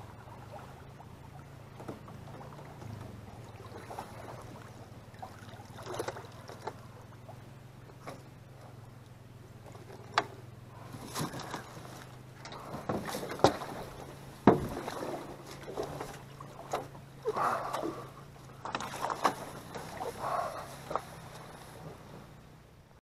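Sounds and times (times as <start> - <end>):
boat hull scraping: 0.0 - 8.8, 9.6 - 22.6
low hum: 0.0 - 23.0
metal boat hull knocking: 14.4 - 14.8.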